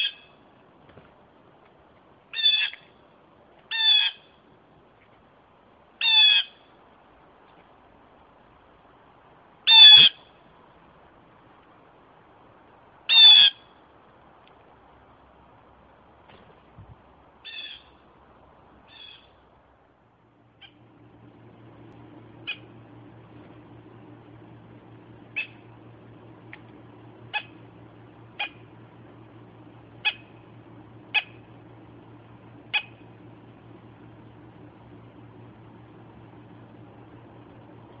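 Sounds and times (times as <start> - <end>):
blue jays calling: 0.0 - 0.4, 2.3 - 3.0, 3.6 - 4.4, 6.0 - 6.6, 9.6 - 10.4, 13.0 - 13.8, 17.3 - 19.5, 20.4 - 29.0, 29.8 - 31.8, 32.6 - 33.3
steady low hum: 0.0 - 38.0.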